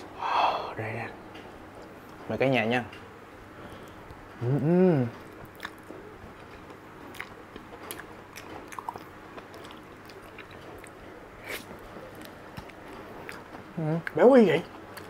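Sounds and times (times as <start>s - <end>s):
person humming: 4.4s - 5.2s
wet chewing: 5.2s - 15.0s.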